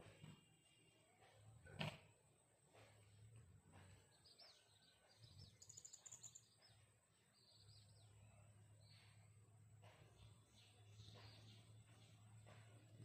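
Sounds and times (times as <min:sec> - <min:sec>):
bird chirps and trill: 0:04.2 - 0:06.8.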